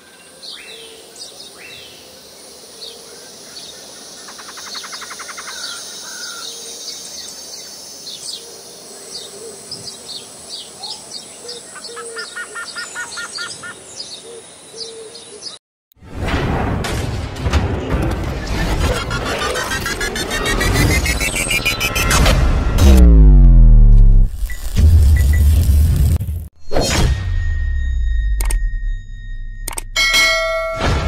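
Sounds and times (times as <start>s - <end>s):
birds chirping: 0.4s - 15.6s, 18.9s - 22.2s
high insect hiss: 1.1s - 11.8s.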